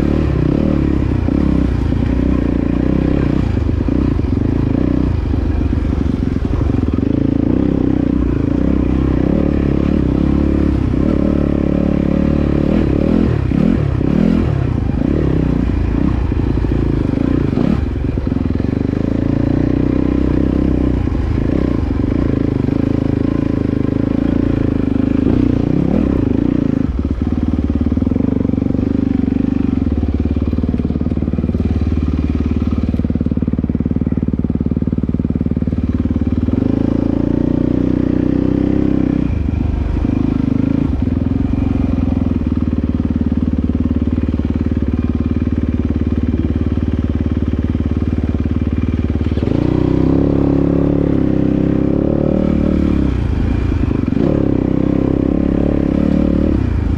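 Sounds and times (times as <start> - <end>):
dirt bike engine revving: 0.0 - 30.8, 49.0 - 56.9.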